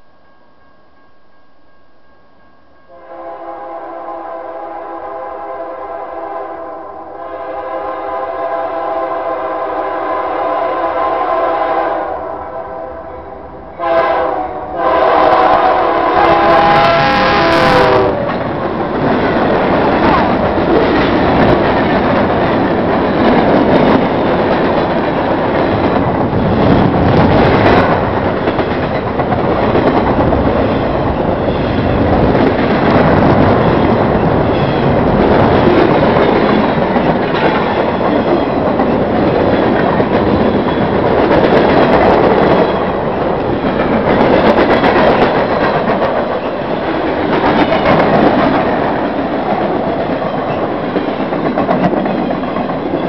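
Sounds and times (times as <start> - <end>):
train wheels rolling on track: 13.4 - 53.0.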